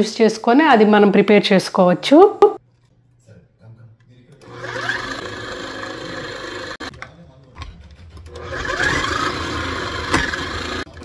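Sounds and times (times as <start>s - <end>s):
food processor motor running: 4.4s - 6.9s, 8.3s - 11.0s.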